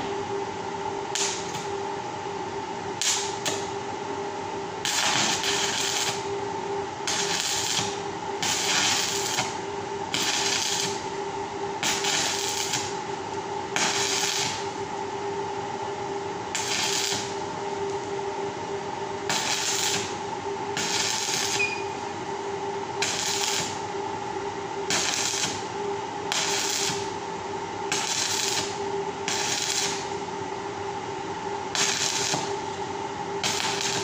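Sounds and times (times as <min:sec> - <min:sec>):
steady hum: 0:00.0 - 0:34.0
arc welding crackling bursts: 0:03.0 - 0:03.6, 0:04.8 - 0:06.2, 0:07.0 - 0:11.1, 0:11.8 - 0:13.0, 0:13.8 - 0:14.8, 0:16.5 - 0:17.4, 0:19.3 - 0:20.2, 0:20.8 - 0:21.6, 0:23.0 - 0:23.8, 0:24.9 - 0:25.7, 0:26.3 - 0:27.2, 0:27.9 - 0:30.2, 0:31.7 - 0:32.6, 0:33.4 - 0:34.0.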